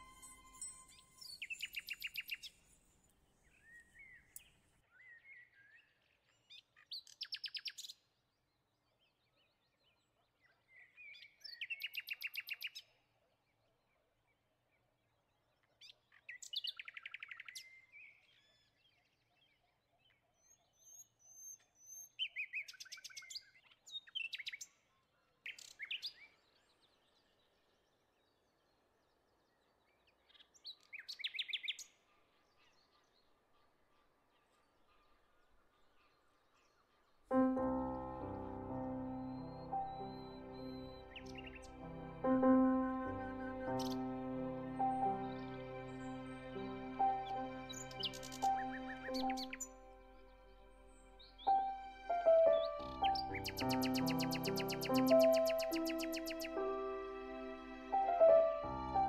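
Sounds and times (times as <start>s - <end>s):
bird chirping high: 0.0s - 2.6s, 37.3s - 59.0s.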